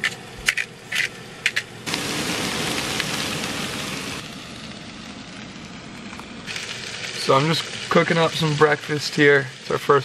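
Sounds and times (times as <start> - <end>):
potatoes sizzling in frying pan: 1.9 - 10.0.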